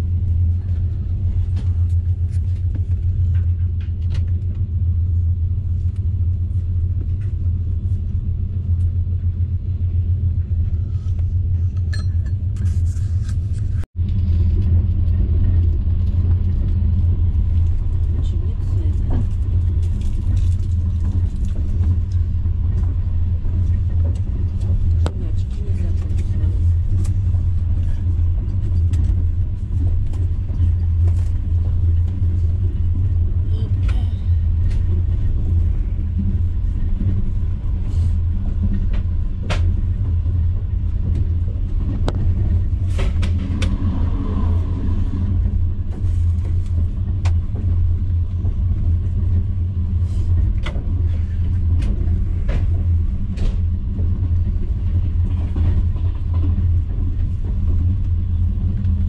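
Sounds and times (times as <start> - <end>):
train rumble inside carriage: 0.0 - 59.0.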